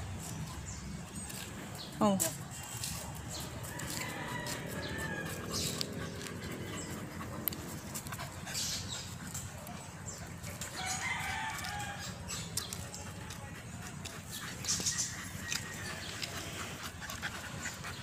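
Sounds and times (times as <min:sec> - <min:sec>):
rooster crowing: 0:03.6 - 0:05.6, 0:10.8 - 0:12.2.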